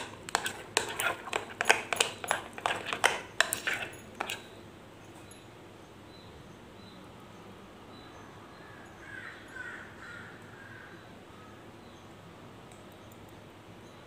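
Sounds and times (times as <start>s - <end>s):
spoon clinking against glass bowl: 0.0s - 4.6s.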